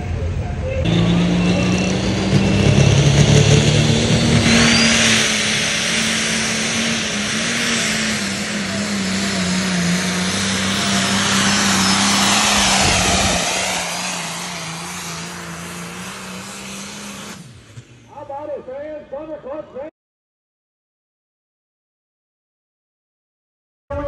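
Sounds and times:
diesel tractor engine at full throttle: 0:00.0 - 0:18.6.

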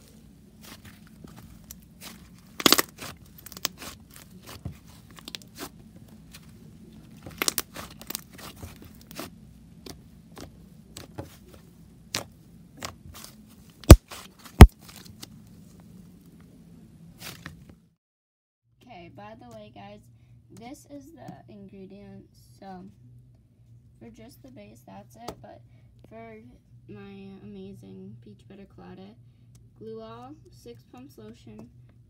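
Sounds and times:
slime crackling: 0:00.0 - 0:05.8, 0:07.2 - 0:09.3
hands squishing slime: 0:00.0 - 0:06.5, 0:07.2 - 0:11.4.

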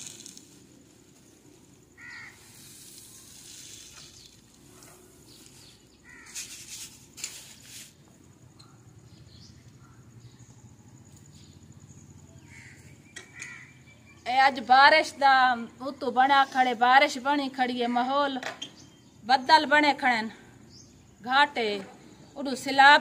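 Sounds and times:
beans poured into plastic basket: 0:00.0 - 0:00.8, 0:02.5 - 0:04.7
plastic bag rustling: 0:00.0 - 0:08.1.

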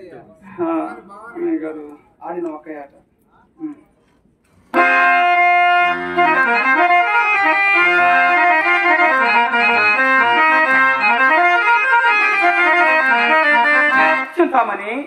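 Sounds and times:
harmonium melody: 0:04.7 - 0:15.0.

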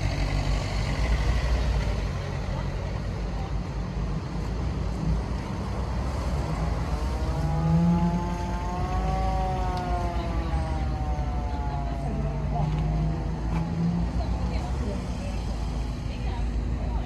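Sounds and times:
engine low rumble: 0:00.0 - 0:17.0.

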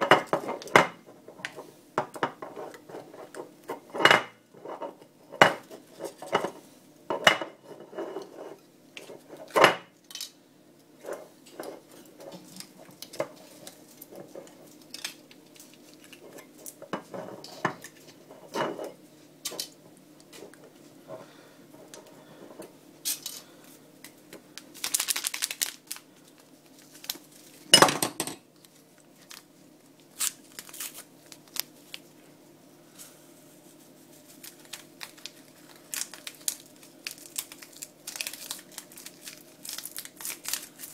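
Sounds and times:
foil crinkling: 0:24.5 - 0:27.7, 0:28.6 - 0:32.1, 0:33.7 - 0:40.9.

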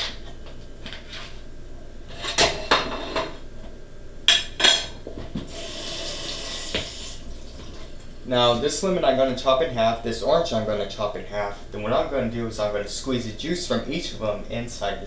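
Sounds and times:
dishes and cutlery clinking: 0:04.3 - 0:05.4
kitchen tap running: 0:05.4 - 0:08.2.

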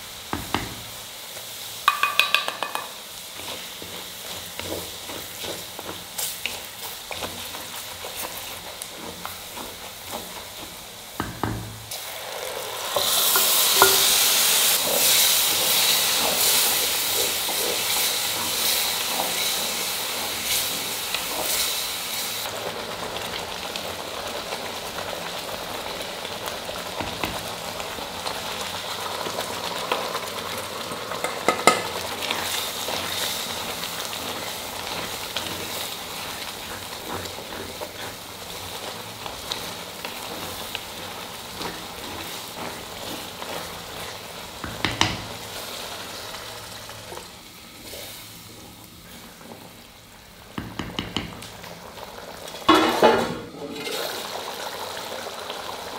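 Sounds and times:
gravy sizzling and bubbling in pot: 0:00.0 - 0:55.9
spatula stirring: 0:01.9 - 0:11.1, 0:31.2 - 0:45.4.

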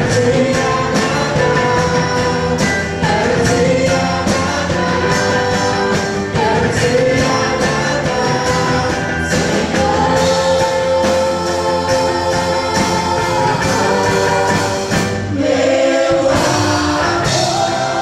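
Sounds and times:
electric guitar: 0:00.0 - 0:15.4
backing singers holding notes: 0:00.0 - 0:18.0
steady drum beat: 0:00.0 - 0:18.0
woman singing lead vocal: 0:00.0 - 0:18.0.

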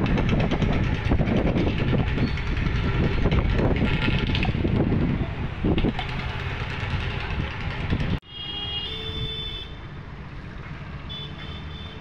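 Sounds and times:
motorbikes passing: 0:00.0 - 0:08.2
street traffic rumble: 0:00.0 - 0:12.0.

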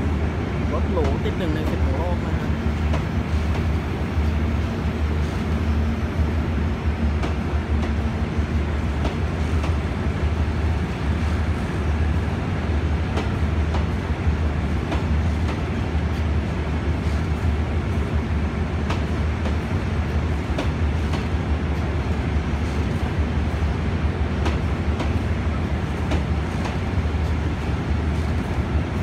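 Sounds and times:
train carriages rumbling: 0:00.0 - 0:29.0.

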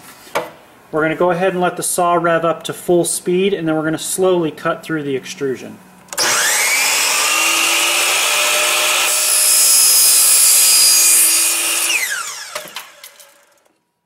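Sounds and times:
miter saw whining: 0:06.1 - 0:13.7
saw cutting through metal: 0:06.2 - 0:13.7.

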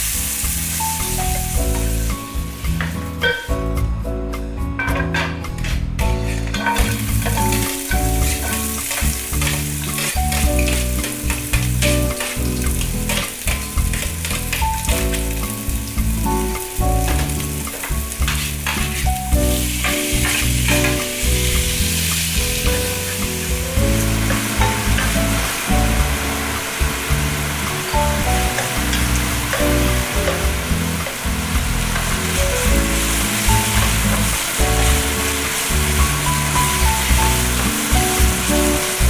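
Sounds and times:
onions sizzling in oil: 0:00.0 - 0:03.5, 0:06.0 - 0:39.0
background music: 0:00.0 - 0:39.0
utensils clicking against pan: 0:06.2 - 0:15.4, 0:17.0 - 0:21.1.

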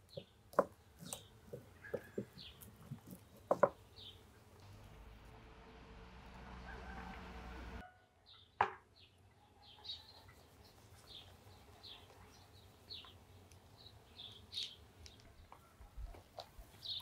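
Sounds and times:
small bird chirping: 0:00.0 - 0:04.4, 0:08.3 - 0:17.0.

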